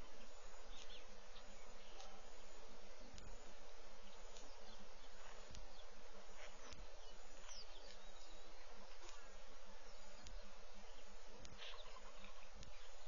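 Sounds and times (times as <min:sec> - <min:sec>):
bird chirps: 0:00.0 - 0:13.0
outdoor ambience hiss: 0:00.0 - 0:13.0.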